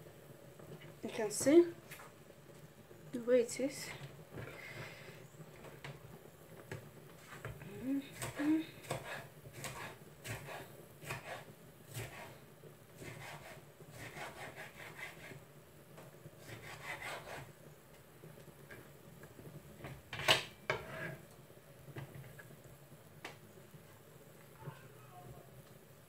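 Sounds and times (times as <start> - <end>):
knife slicing on wooden board: 8.2 - 12.3.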